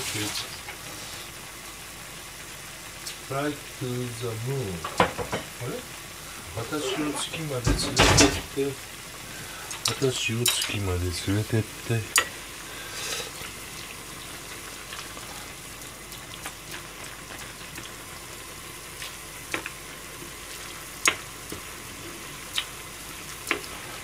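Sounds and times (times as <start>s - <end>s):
broth bubbling in pan: 0.0s - 24.0s.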